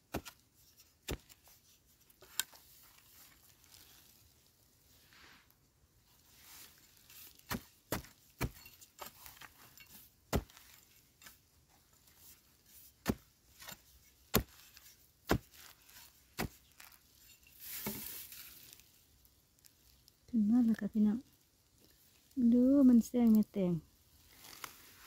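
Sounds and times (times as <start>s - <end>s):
spade chopping into hard soil: 0.1s - 0.4s, 1.0s - 1.4s, 7.4s - 11.4s, 13.0s - 16.9s.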